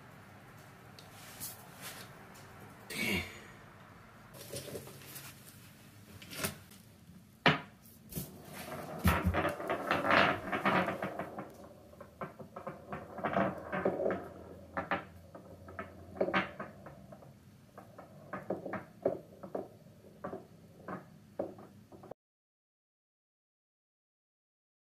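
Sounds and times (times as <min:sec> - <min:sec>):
ball rolling on stone floor: 0:04.3 - 0:05.5, 0:07.4 - 0:22.2.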